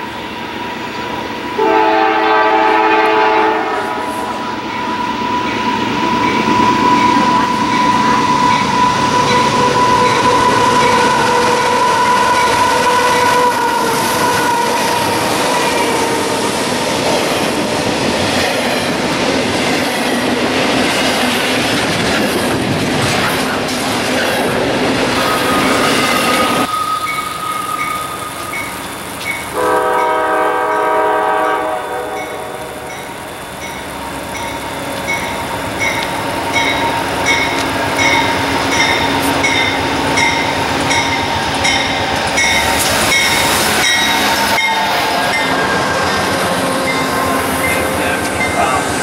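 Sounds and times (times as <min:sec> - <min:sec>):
train cars clattering: 0:00.0 - 0:49.0
train wheels on rails: 0:00.0 - 0:49.0
train horn chord: 0:01.5 - 0:05.5, 0:06.2 - 0:16.7, 0:29.5 - 0:33.1.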